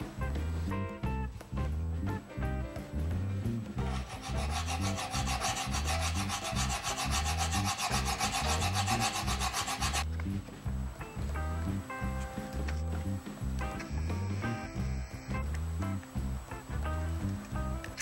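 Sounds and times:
hand file rasping on steel: 3.8s - 10.1s.

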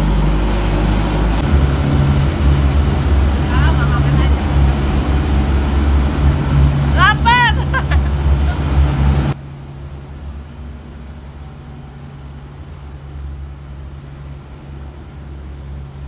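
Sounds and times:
boat engine droning: 0.0s - 16.0s.

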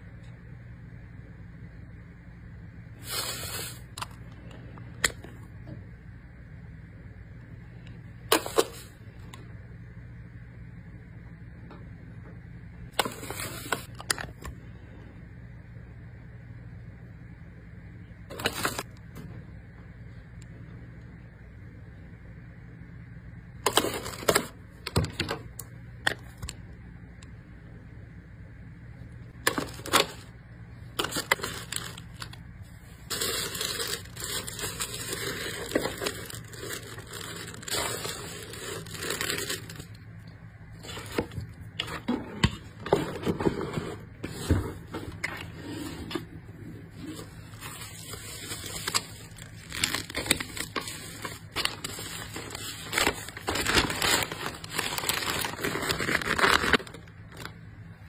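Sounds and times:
tissue paper and plastic rustling: 3.0s - 4.1s, 18.3s - 18.9s, 29.4s - 30.3s, 31.0s - 39.9s, 46.9s - 57.6s.

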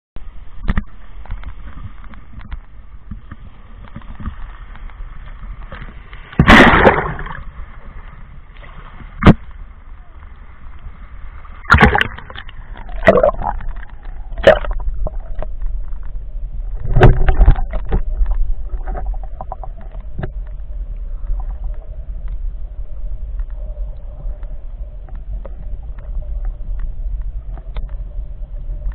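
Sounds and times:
low muffled rumble: 0.2s - 28.9s
water sloshing and splashing: 0.7s - 9.7s, 10.8s - 22.4s
loud splash: 6.4s - 7.5s, 11.6s - 12.4s.

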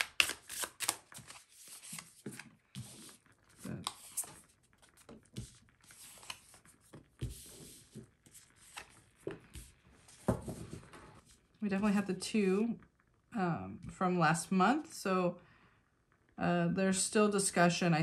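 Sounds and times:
cards flicking and sliding: 0.0s - 3.1s, 5.0s - 9.0s.

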